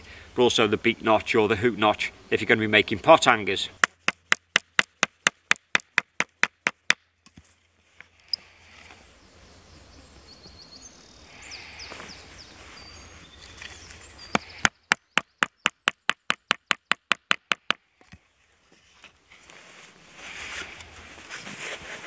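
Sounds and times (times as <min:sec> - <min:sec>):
knife chopping wooden stick: 0:03.8 - 0:07.0.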